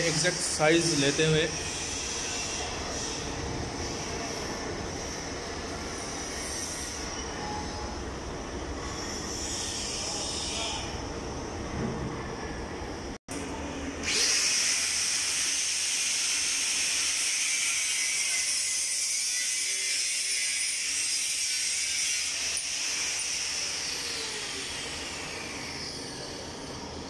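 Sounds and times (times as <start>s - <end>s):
angle grinder cutting steel: 14.0s - 26.7s.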